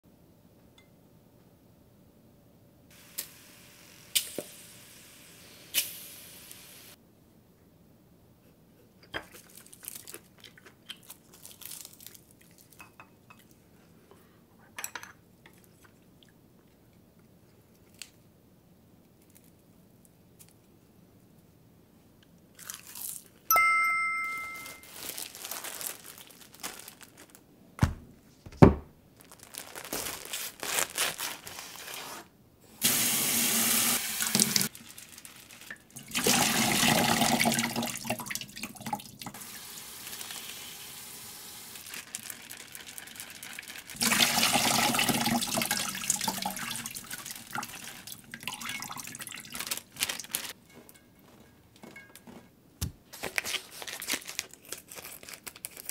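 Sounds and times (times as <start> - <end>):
two-tone ringing chime: 23.5 - 25.0
wet handling sounds: 24.3 - 28.0, 29.2 - 32.0, 34.2 - 39.1, 41.8 - 55.9.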